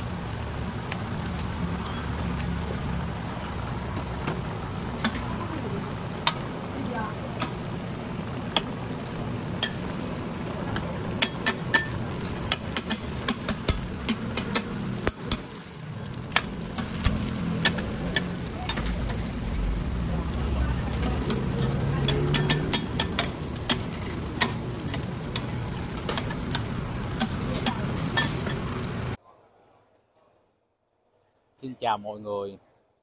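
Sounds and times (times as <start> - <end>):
frying sizzle: 0.0 - 29.2
utensils clinking: 21.0 - 28.9.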